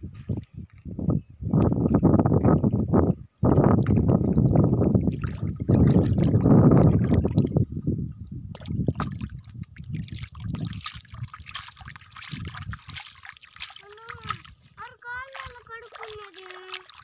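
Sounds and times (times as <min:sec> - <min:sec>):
water lapping and trickling: 0:00.0 - 0:17.0
crackling splashes in mud: 0:08.6 - 0:17.0.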